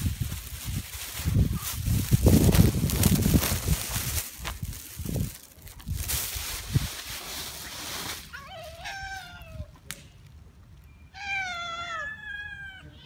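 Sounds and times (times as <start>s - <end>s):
rustling noise: 0.0s - 9.6s
cats meowing: 8.3s - 9.8s, 11.1s - 13.0s.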